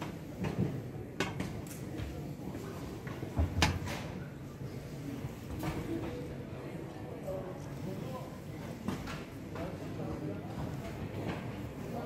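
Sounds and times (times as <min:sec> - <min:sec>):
exhibition hall background noise: 0:00.0 - 0:12.0.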